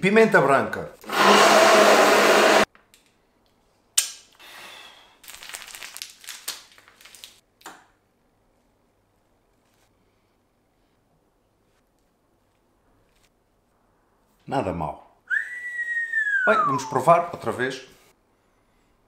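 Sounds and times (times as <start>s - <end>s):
hand blender running: 1.0s - 2.7s
plastic piping bag crinkling: 5.2s - 7.4s.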